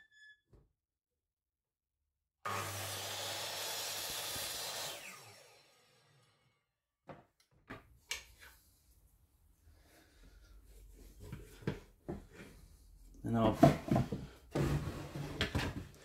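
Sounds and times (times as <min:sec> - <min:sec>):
mitre saw winding down: 0:02.5 - 0:06.4.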